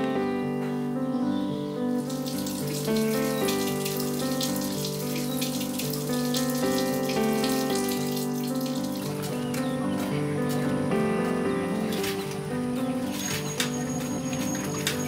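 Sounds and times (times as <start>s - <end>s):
background music of held chords: 0.0s - 15.0s
water running at a sink: 2.0s - 9.5s, 13.0s - 15.0s.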